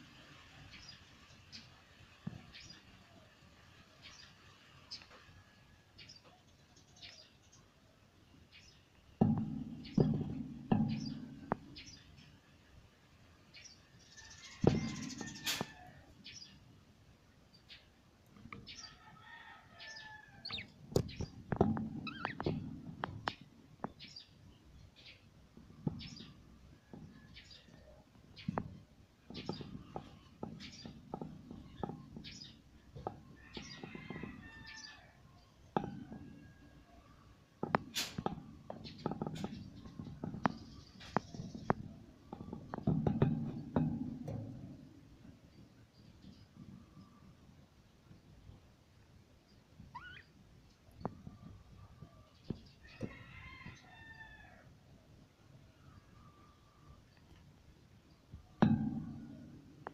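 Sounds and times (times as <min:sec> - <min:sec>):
sharp knocks: 0:09.2 - 0:12.2, 0:25.6 - 0:34.9, 0:37.6 - 0:45.3, 0:58.3 - 0:59.9
budgerigars chirping and warbling: 0:22.0 - 0:22.6, 0:49.9 - 0:50.3.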